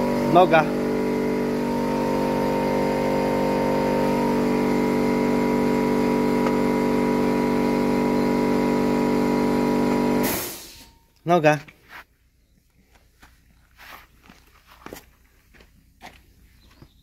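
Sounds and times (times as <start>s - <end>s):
engine humming: 0.0s - 10.9s.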